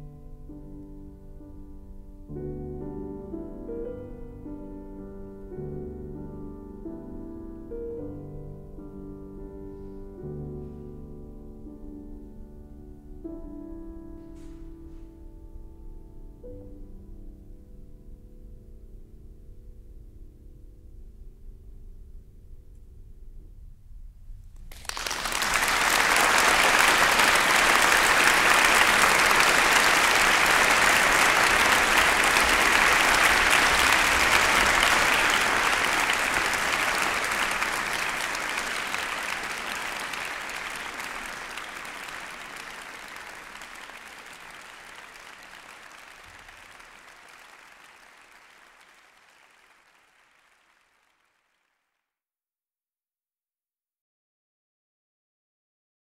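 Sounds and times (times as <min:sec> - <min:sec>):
audience applauding: 0:24.7 - 0:51.7.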